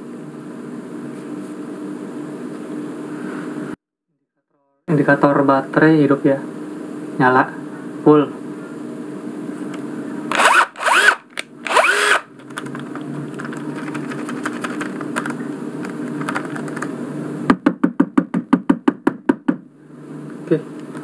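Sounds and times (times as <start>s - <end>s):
cordless drill motor whirring: 10.3s - 12.7s
fast even clicking: 13.4s - 16.9s.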